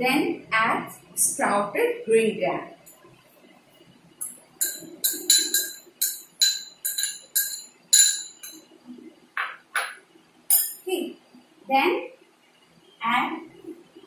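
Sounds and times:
metal spoon clinking on ceramic bowl: 0:04.2 - 0:08.7, 0:09.8 - 0:10.8
spoon scraping bowl: 0:04.6 - 0:08.6.

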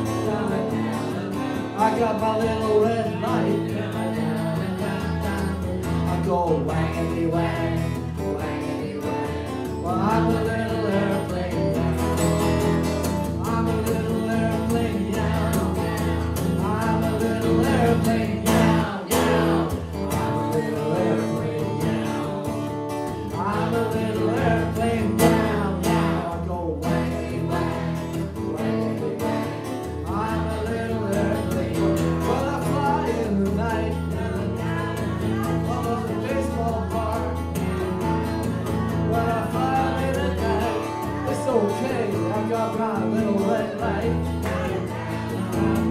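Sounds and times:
acoustic guitar strumming: 0:00.0 - 0:45.9
people singing: 0:00.0 - 0:45.9.

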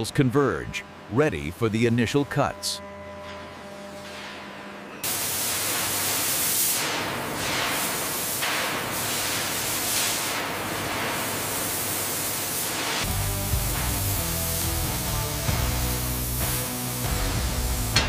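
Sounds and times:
cutting torch hissing: 0:05.0 - 0:18.0
music: 0:13.0 - 0:18.0.

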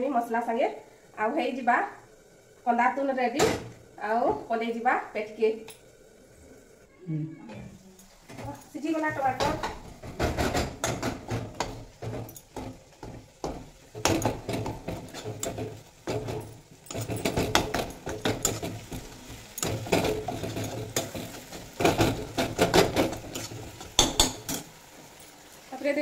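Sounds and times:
spatula scraping and knocking pan: 0:08.2 - 0:24.7.

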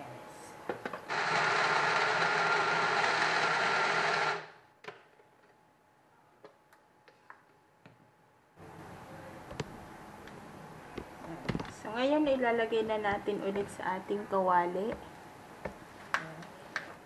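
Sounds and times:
blender motor running: 0:01.1 - 0:04.6.

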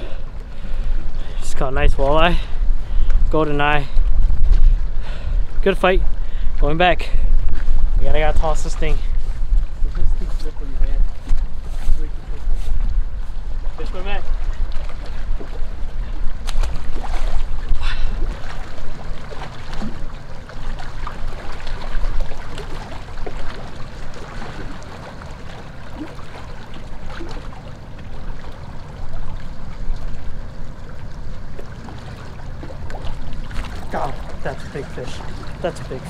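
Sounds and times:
wind buffeting microphone: 0:00.0 - 0:26.1
water lapping at shoreline: 0:00.0 - 0:36.0.

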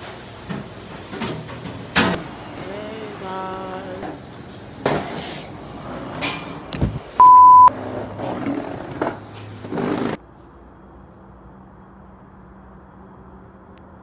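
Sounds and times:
single-pitched beep tone: 0:07.2 - 0:07.7.

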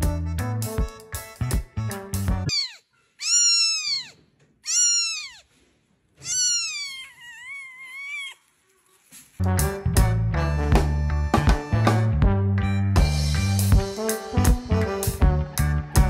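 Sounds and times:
music: 0:00.0 - 0:02.5, 0:09.4 - 0:16.0
cat meowing: 0:02.5 - 0:05.5, 0:06.2 - 0:08.5.

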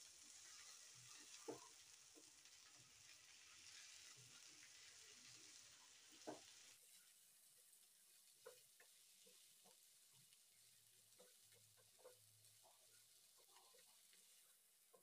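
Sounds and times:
vegetables sizzling in oil: 0:00.0 - 0:15.0
spatula knocking against pan: 0:08.4 - 0:09.8, 0:11.1 - 0:12.8.

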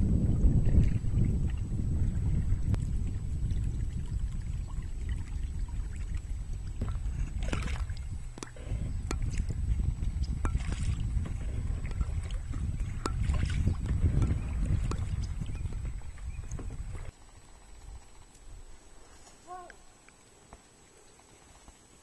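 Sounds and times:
wind rumble on microphone: 0:00.0 - 0:18.9
water dripping: 0:02.7 - 0:17.0
paddle splashing in water: 0:03.1 - 0:17.1.

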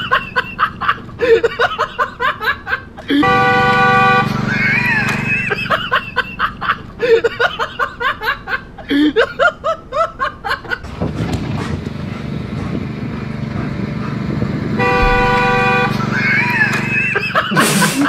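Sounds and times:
car horn honking: 0:03.1 - 0:05.7, 0:14.8 - 0:17.1
steady rumbling noise: 0:10.8 - 0:16.7.

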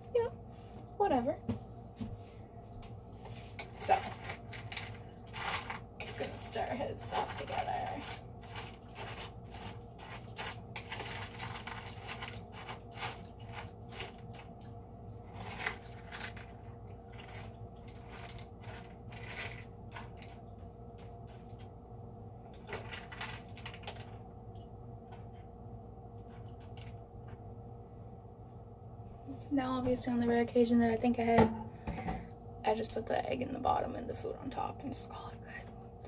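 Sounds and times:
utensil scraping in food bowl: 0:03.2 - 0:14.5, 0:15.2 - 0:20.3.

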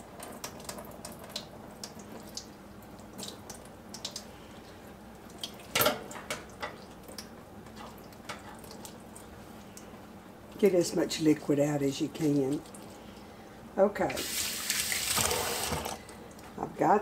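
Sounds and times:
juice dripping: 0:00.0 - 0:05.8.

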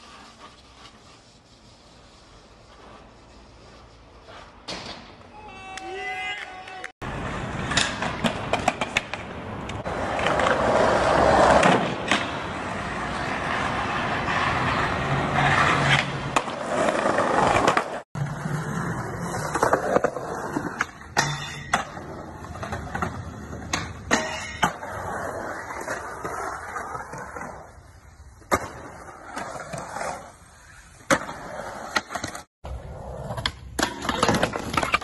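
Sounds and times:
skateboard clacks and knocks: 0:07.6 - 0:10.7
skateboard grinding on metal rail: 0:09.8 - 0:27.4.

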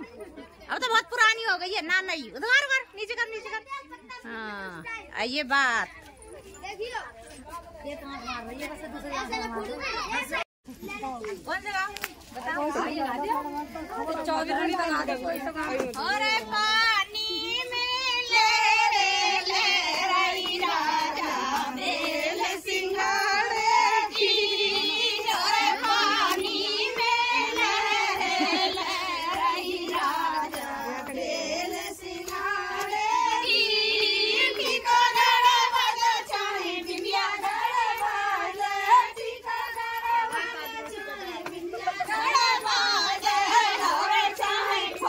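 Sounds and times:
women singing folk song: 0:13.9 - 0:45.0.

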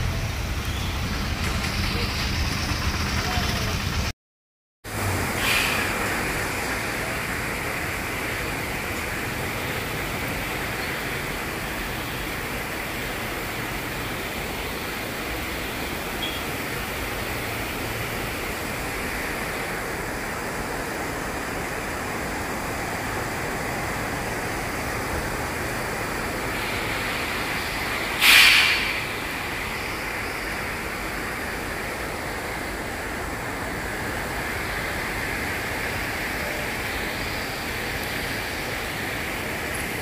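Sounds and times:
traffic hiss on wet road: 0:00.0 - 0:04.1, 0:04.9 - 0:40.0
steady rain falling: 0:04.9 - 0:40.0
brief noisy burst: 0:05.3 - 0:06.2, 0:28.1 - 0:29.2.

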